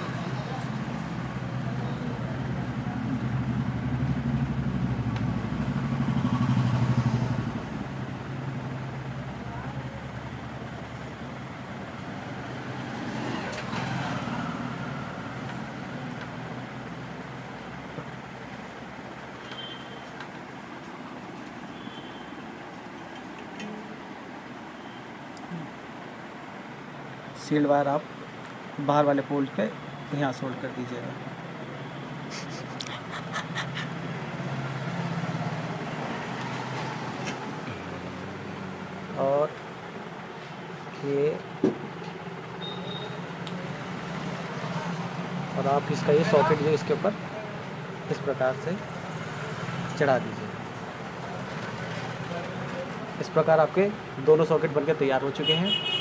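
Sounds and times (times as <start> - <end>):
vehicle passing by: 0.0 - 17.5, 32.1 - 41.4, 43.2 - 54.0
road traffic noise: 0.0 - 56.0.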